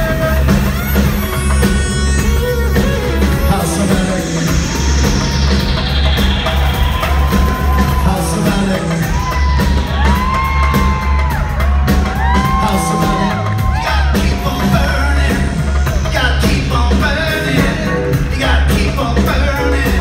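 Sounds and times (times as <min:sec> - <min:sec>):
drums: 0:00.0 - 0:20.0
heavy pulsing bass line: 0:00.0 - 0:20.0
whoops: 0:06.7 - 0:14.8.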